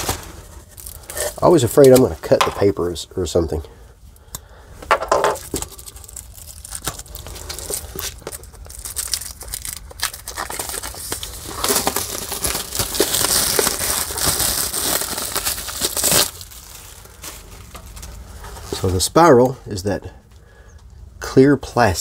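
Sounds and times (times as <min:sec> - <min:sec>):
plastic wrap crinkling and tearing: 0:00.0 - 0:02.4, 0:05.3 - 0:19.1.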